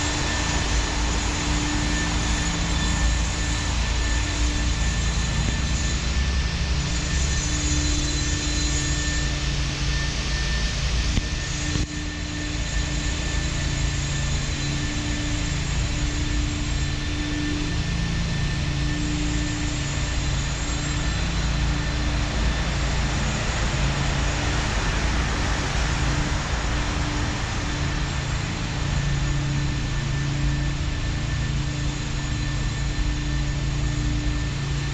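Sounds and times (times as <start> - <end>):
low hum of passing vehicles: 0.0 - 34.9
road traffic noise: 15.5 - 32.4.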